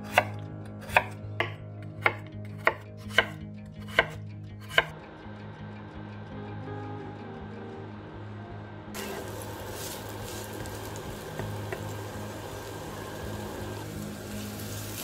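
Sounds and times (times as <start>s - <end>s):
knife striking cutting board: 0.0s - 4.9s.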